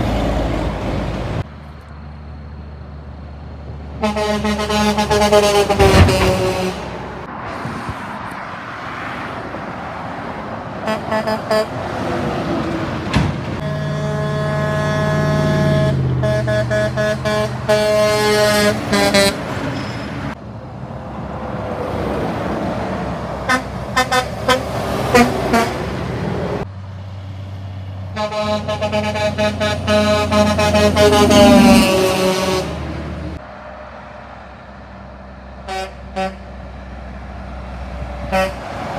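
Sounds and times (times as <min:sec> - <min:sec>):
dump truck diesel engine drone: 0:00.0 - 0:38.9
short horn toots: 0:04.0 - 0:06.9, 0:13.6 - 0:19.4
truck air horn blast: 0:04.0 - 0:07.2, 0:10.8 - 0:11.8, 0:13.6 - 0:19.5, 0:23.4 - 0:25.9, 0:28.1 - 0:33.4, 0:35.6 - 0:36.6, 0:38.2 - 0:38.7.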